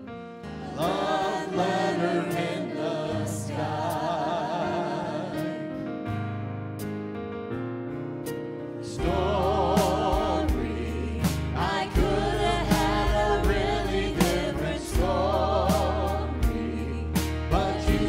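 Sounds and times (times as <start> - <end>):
keyboard: 0.0 - 18.0
singers with vibrato: 0.5 - 5.6, 8.9 - 18.0
drum kit: 9.0 - 18.0
low bass: 9.0 - 18.0.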